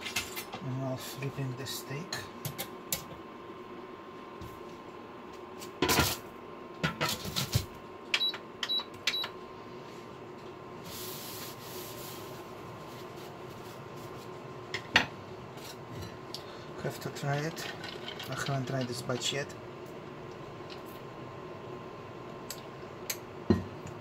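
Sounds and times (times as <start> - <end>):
clatter and knocks in oven: 5.8 - 6.2, 6.8 - 9.2.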